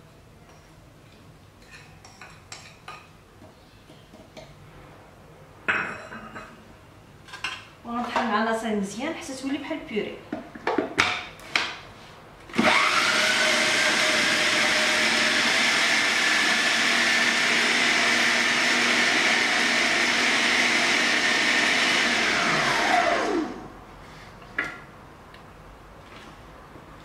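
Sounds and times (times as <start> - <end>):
food processor motor whining: 12.5 - 23.7.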